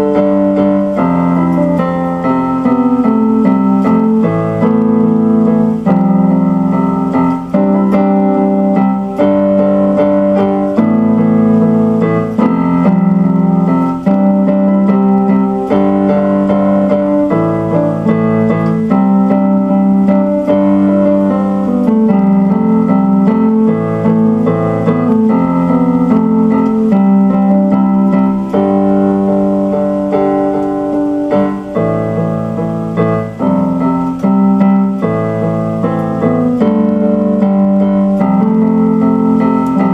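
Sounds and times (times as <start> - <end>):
electronic piano chords: 0.0 - 39.9.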